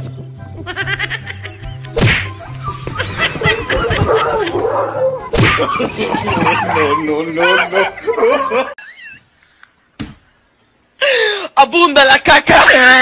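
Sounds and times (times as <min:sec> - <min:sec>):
background music: 0:00.0 - 0:08.8.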